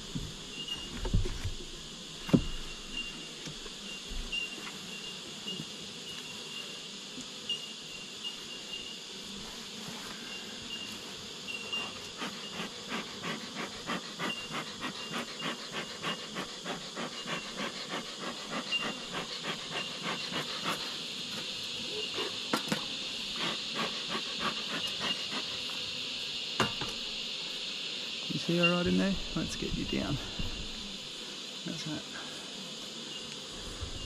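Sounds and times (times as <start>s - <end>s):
insects chirping: 0.0s - 34.0s
smoker bellows hissing puffs: 11.0s - 31.5s.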